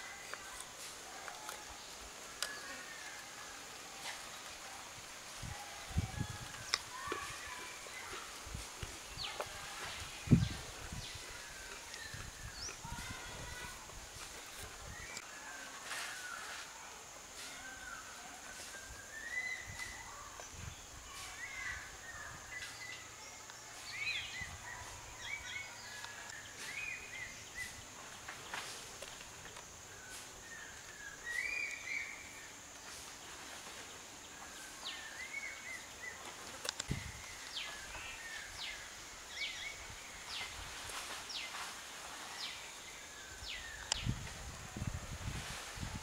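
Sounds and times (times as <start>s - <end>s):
birds chirping: 0.0s - 15.3s
steady high hiss: 0.0s - 46.0s.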